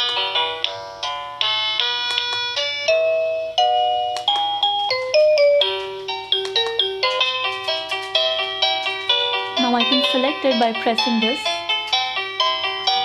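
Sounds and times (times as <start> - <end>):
electronic doorbell chime tune: 0.0 - 13.0.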